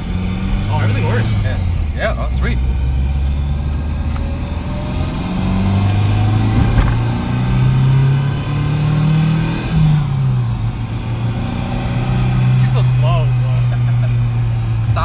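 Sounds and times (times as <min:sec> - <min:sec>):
car engine accelerating: 0:00.0 - 0:15.0
gear change: 0:00.0 - 0:15.0.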